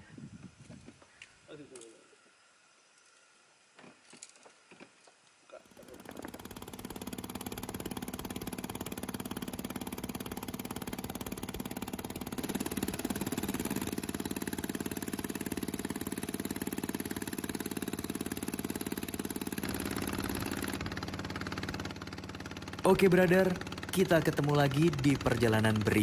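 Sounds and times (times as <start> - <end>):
wind: 0.0 - 26.0
boat engine running: 5.7 - 26.0.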